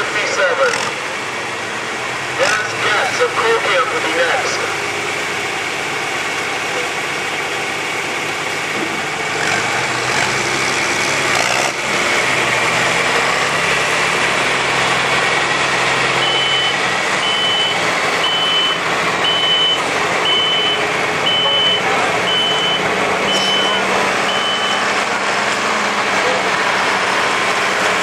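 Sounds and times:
tractor engine under load: 0:00.0 - 0:28.0
reversing beeper: 0:16.1 - 0:25.0.

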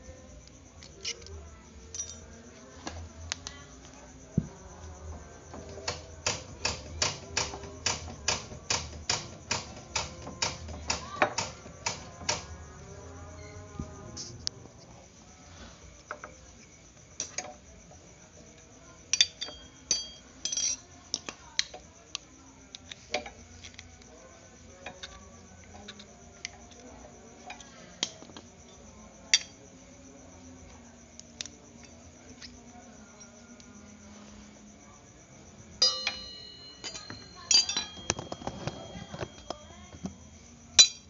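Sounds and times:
metallic clicks and clinks: 0:00.8 - 0:02.3, 0:19.2 - 0:21.8, 0:35.8 - 0:40.2.

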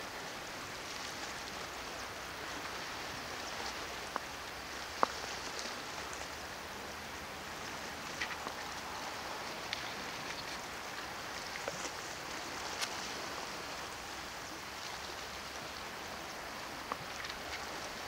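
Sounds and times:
waves lapping against rocks: 0:00.0 - 0:18.0.

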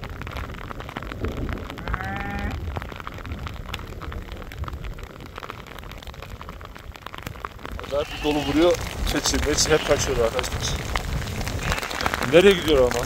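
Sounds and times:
hailstones striking: 0:00.0 - 0:13.0
sheep bleating: 0:01.8 - 0:02.6, 0:07.8 - 0:10.8, 0:11.4 - 0:12.8.

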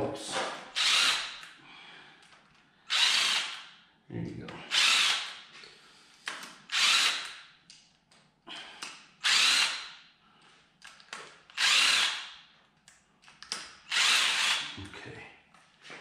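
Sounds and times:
cordless drill spinning: 0:00.7 - 0:01.6, 0:02.9 - 0:03.7, 0:04.7 - 0:05.5, 0:06.6 - 0:07.5, 0:09.2 - 0:10.0, 0:11.5 - 0:12.4, 0:13.8 - 0:14.8.

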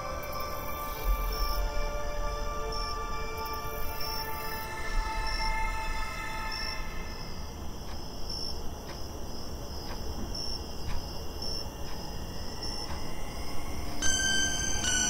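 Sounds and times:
sustained music tones: 0:00.0 - 0:08.2, 0:11.8 - 0:15.0
crickets chirping: 0:00.0 - 0:15.0
faint ticks: 0:07.8 - 0:13.4.

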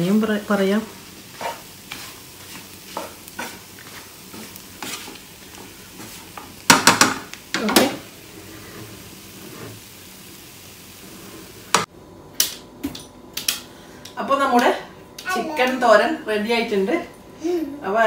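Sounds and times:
light sizzle: 0:00.0 - 0:18.0
spatula scraping frying pan: 0:00.8 - 0:10.2, 0:10.8 - 0:11.8.

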